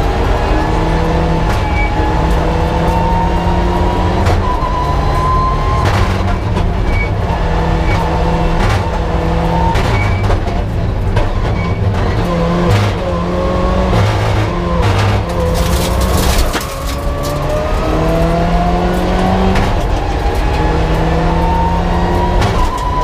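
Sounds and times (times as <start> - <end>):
rally car engine revving: 0.0 - 23.0
sharp cracks: 15.4 - 17.5.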